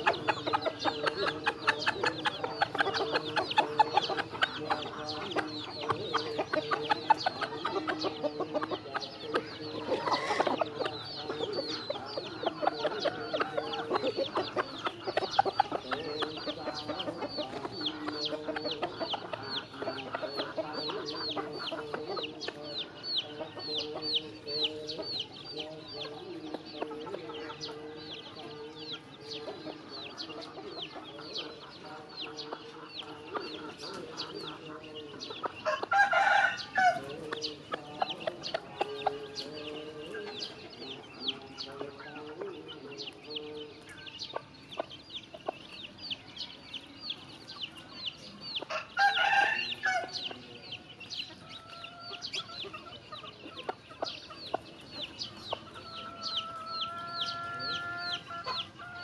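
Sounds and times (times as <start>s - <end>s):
chicks peeping: 0.0s - 59.0s
hen clucking: 0.0s - 59.0s
rooster crowing: 35.7s - 37.1s, 48.7s - 50.2s.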